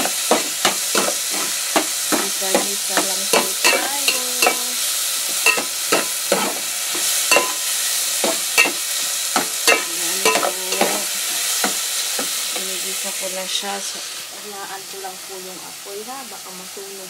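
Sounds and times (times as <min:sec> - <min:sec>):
vegetables sizzling in a pot: 0:00.0 - 0:17.0
metal spoon scraping a pot: 0:05.4 - 0:08.8, 0:09.6 - 0:11.6.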